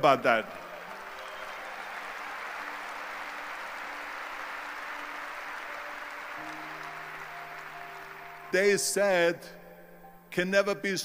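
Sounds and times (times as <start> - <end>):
audience applauding: 0.0 - 8.8
soft background music: 0.0 - 11.0.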